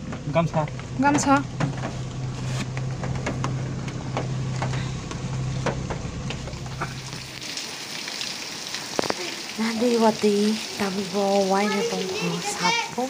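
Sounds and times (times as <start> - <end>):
car engine hum: 0.0 - 7.5
rain tapping on car: 0.0 - 13.0
heavy rain on pavement: 0.8 - 13.0.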